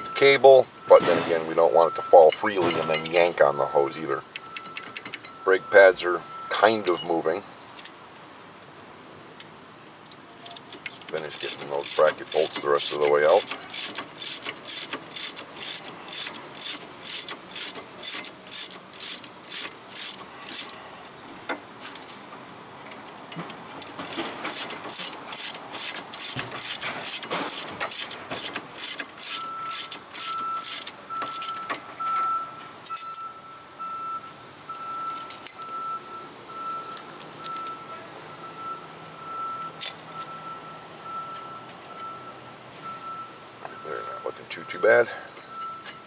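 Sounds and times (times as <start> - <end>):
ratchet wrench clicking: 10.4 - 20.8, 23.8 - 31.8.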